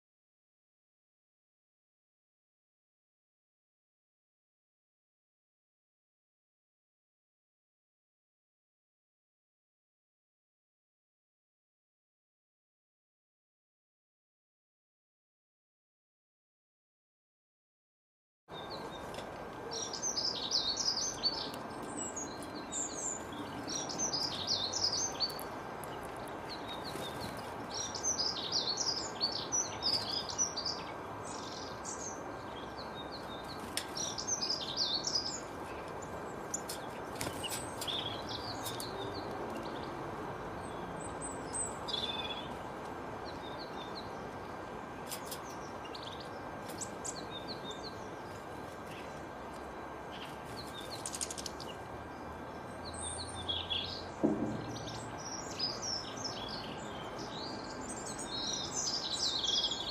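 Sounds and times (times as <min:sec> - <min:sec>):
small songbirds chirping: 0:18.5 - 0:59.9.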